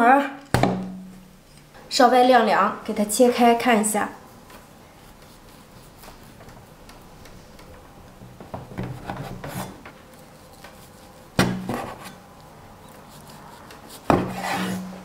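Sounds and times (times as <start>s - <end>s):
cleaver blade rubbing cake: 9.2s - 12.2s, 12.8s - 15.0s.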